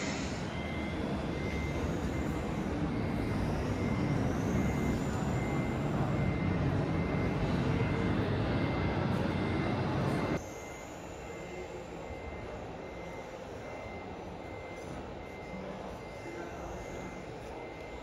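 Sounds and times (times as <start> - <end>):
short beeps: 0.0 - 18.0.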